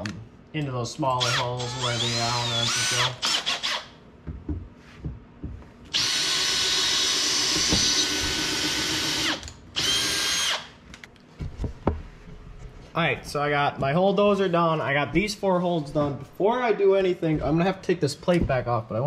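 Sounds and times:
cordless drill running: 1.2s - 3.9s, 5.9s - 10.8s.

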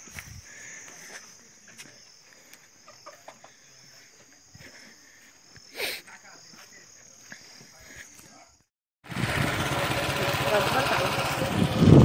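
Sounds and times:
insects chirring: 0.0s - 8.7s.

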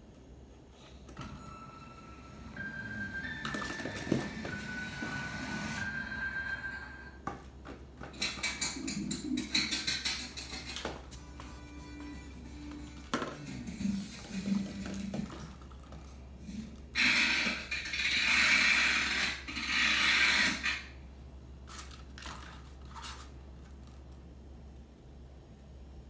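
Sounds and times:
toy scraping across hard floor: 12.5s - 20.9s, 21.7s - 23.4s.

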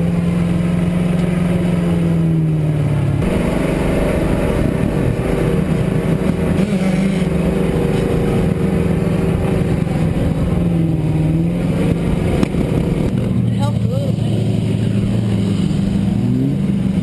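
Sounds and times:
vehicle engine drone: 0.0s - 17.0s.

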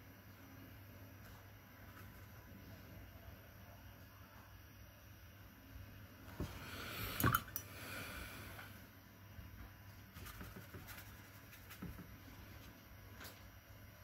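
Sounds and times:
brush dabbing and scrubbing: 10.0s - 12.8s.

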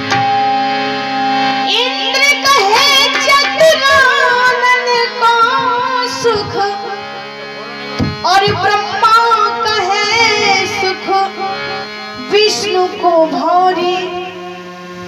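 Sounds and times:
held accompaniment notes: 0.0s - 15.0s
woman singing into a microphone: 1.7s - 7.2s, 8.1s - 14.8s.

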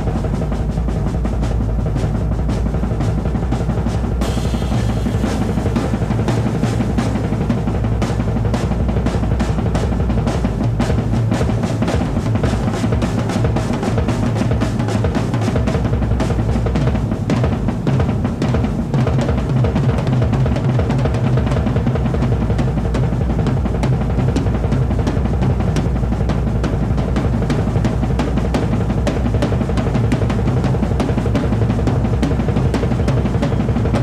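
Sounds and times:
bass drum pulse: 0.0s - 34.0s
snare and tom strokes: 0.0s - 34.0s
cymbals ringing: 4.2s - 7.5s.

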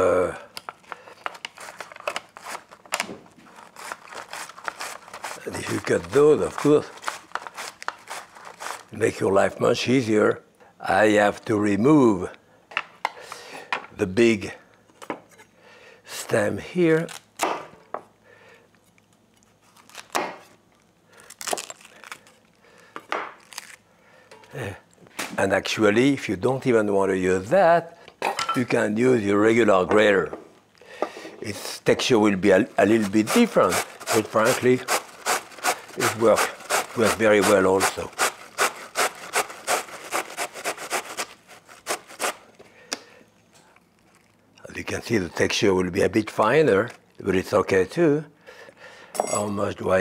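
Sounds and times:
knife cutting cabbage on board: 32.8s - 42.4s.

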